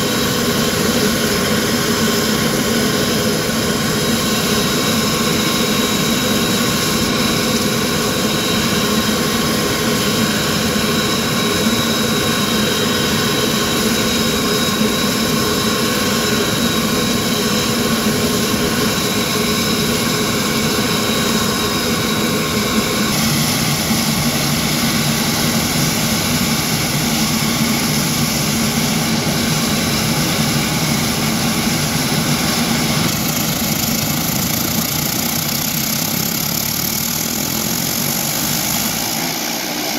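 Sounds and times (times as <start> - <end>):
turboprop engines running: 0.0 - 39.9.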